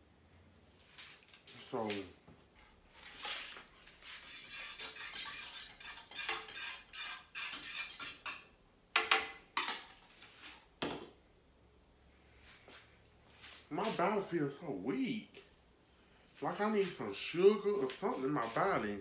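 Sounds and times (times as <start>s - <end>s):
utensil scraping noodles in pot: 3.0s - 8.6s.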